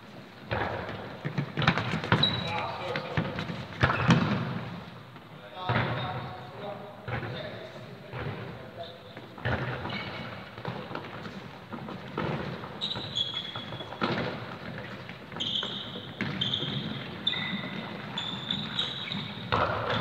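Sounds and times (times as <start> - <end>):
ball kicked and bouncing: 0.5 - 4.7, 10.6 - 20.0
trainers squeaking on floor: 1.6 - 4.2, 9.6 - 10.6, 12.2 - 20.0.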